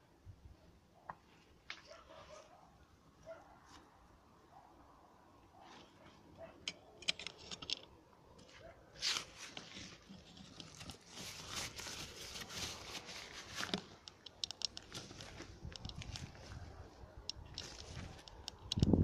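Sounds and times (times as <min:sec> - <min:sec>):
sharp crackling clicks: 0:13.7 - 0:16.3, 0:17.3 - 0:19.0.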